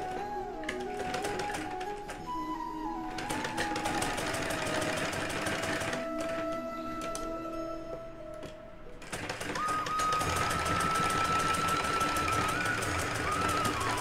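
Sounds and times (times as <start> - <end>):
sewing machine stitching: 0.0 - 2.2, 3.2 - 6.5, 9.0 - 14.0.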